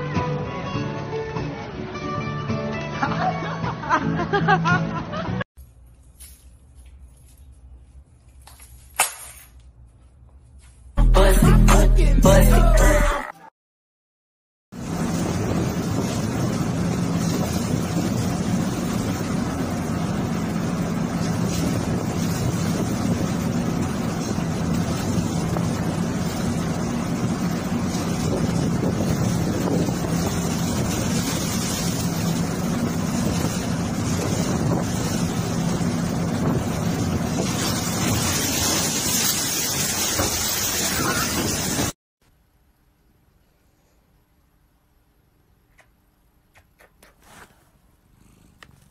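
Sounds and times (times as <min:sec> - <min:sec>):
ship engine humming: 0:14.8 - 0:39.4
loud rushing wind: 0:14.8 - 0:42.0
seawater washing across deck: 0:14.8 - 0:42.0.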